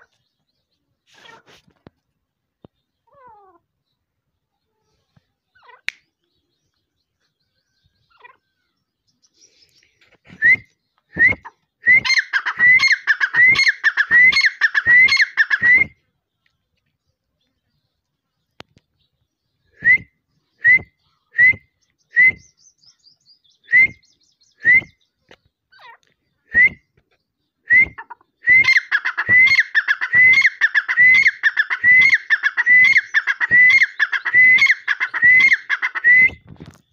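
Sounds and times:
bird whistled calls: 10.3 - 16.0, 19.7 - 25.1, 26.4 - 27.0, 27.6 - 36.7.

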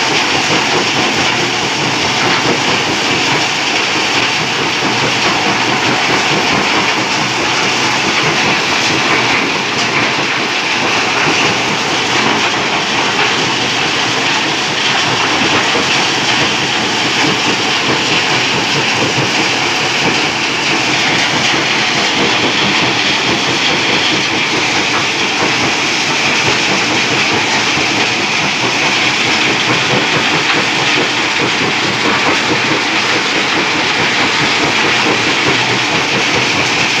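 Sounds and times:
rock crusher machinery clatter: 0.0 - 37.0.

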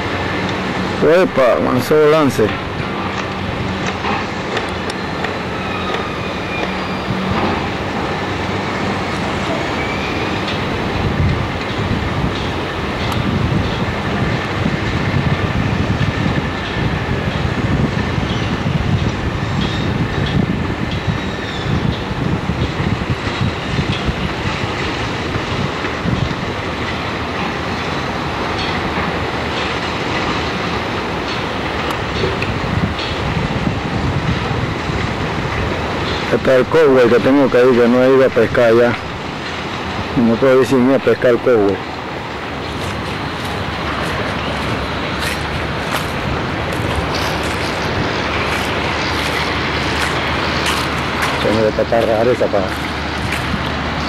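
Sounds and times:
surf breaking on rocky shore: 23.1 - 54.0.

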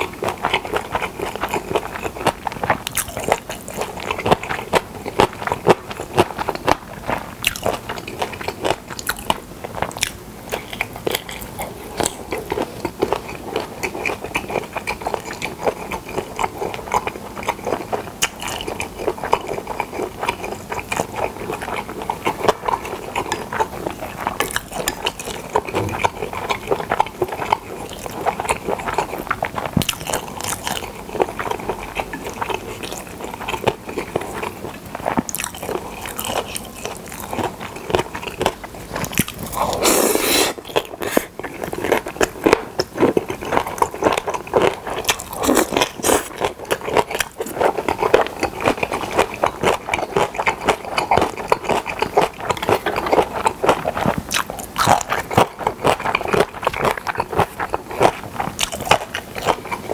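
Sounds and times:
close-miked chewing: 0.0 - 59.9.

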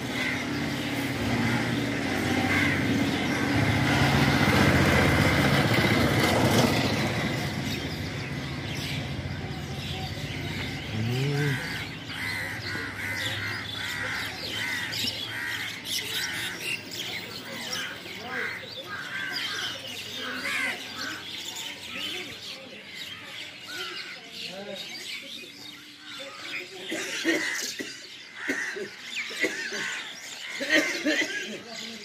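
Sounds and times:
crows cawing: 0.0 - 3.6, 11.2 - 16.8, 17.6 - 21.4, 26.2 - 31.2
vehicle engine passing: 0.0 - 14.8.

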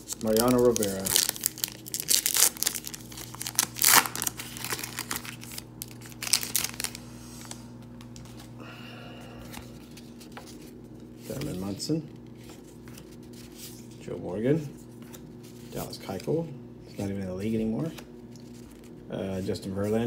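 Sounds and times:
wrapper tearing and crinkling: 0.0 - 8.4
cards rustling: 0.0 - 8.6, 9.4 - 14.0, 17.8 - 19.0.

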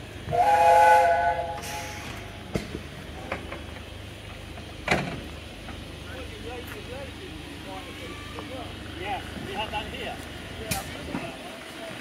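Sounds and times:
steam locomotive whistle: 0.3 - 2.2
short steam hiss: 0.3 - 2.4.

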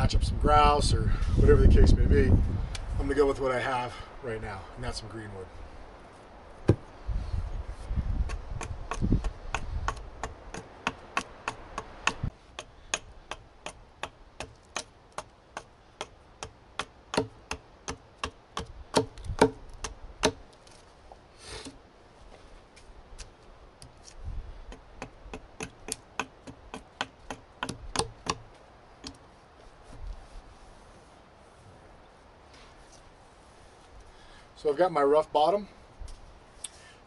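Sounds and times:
rustle: 0.0 - 37.0
axe chopping branch: 8.2 - 20.4.

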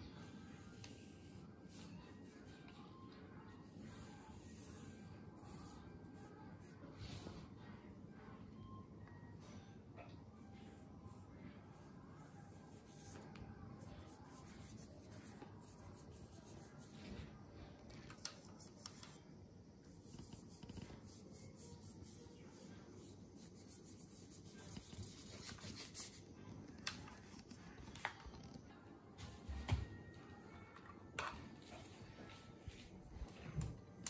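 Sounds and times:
paintbrush rubbing on paper: 12.3 - 17.3, 19.9 - 26.3.

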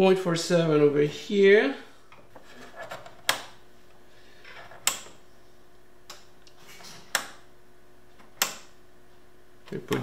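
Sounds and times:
faint steady hum: 0.0 - 10.0
multimeter switch clicks: 4.8 - 5.2, 8.4 - 8.7.

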